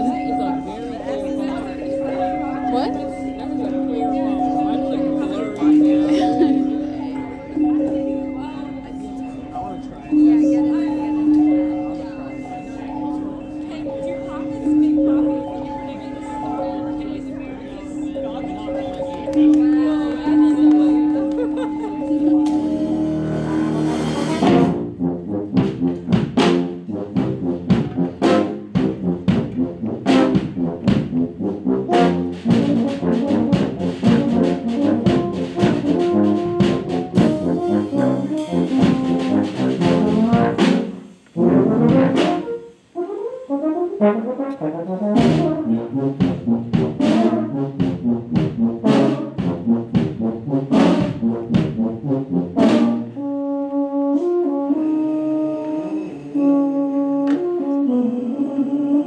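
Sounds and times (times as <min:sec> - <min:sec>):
brass ensemble music: 0:00.0 - 0:08.4, 0:19.3 - 0:59.0
steady drum beat: 0:22.4 - 0:43.2, 0:44.8 - 0:53.2.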